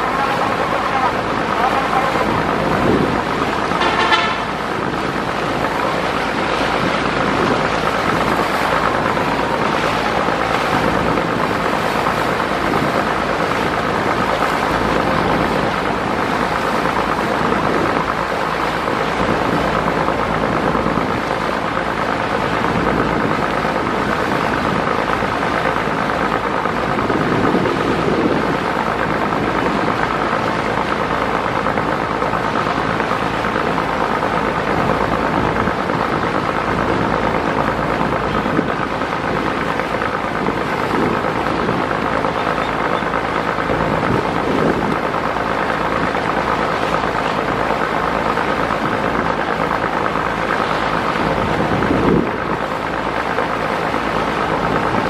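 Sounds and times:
boat engines droning: 0.0s - 55.0s
rushing water: 0.0s - 55.0s
wind: 0.0s - 55.0s
boat horn blast: 3.0s - 5.4s.

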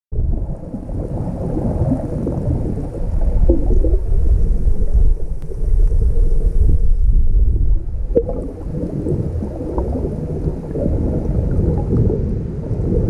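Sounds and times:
muffled underwater rumble: 0.1s - 13.0s.

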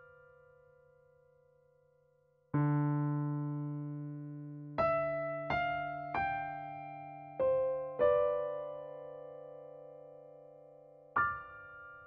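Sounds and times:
piano notes: 4.8s - 10.2s.

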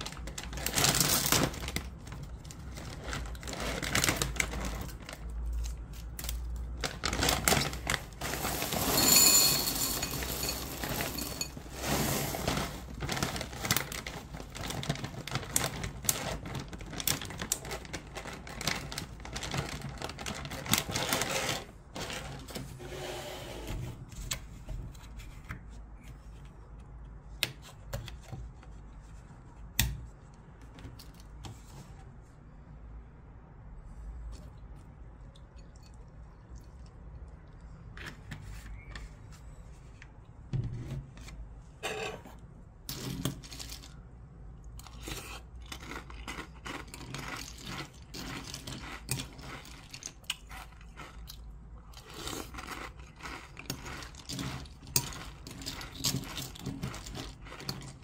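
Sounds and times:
plastic bag crinkling: 0.0s - 22.7s
cereal rattling into a ceramic bowl: 6.9s - 22.5s, 42.9s - 44.0s, 45.6s - 51.3s, 52.0s - 58.0s.

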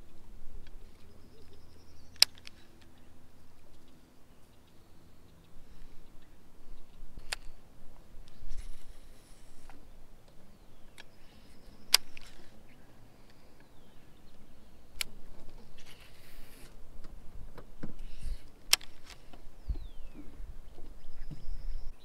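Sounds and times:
light hiss: 0.0s - 20.0s
soft rustling: 5.6s - 10.5s.

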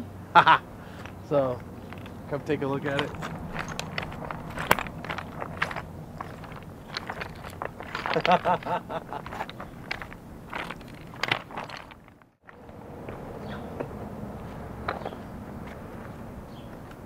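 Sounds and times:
footsteps on loose stones: 0.9s - 17.0s.

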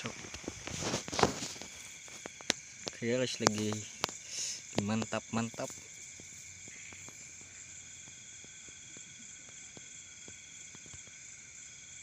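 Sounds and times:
crickets trilling: 0.0s - 12.0s
faint clicks and taps: 0.2s - 6.3s.

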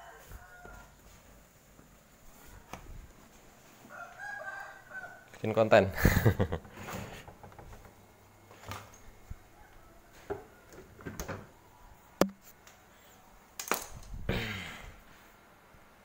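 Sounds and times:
scattered knocks and clicks: 6.6s - 8.0s.

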